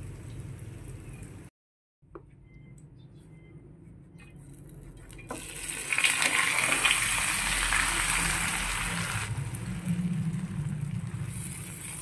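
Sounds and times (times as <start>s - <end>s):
omelette sizzling in oil: 5.3s - 12.0s.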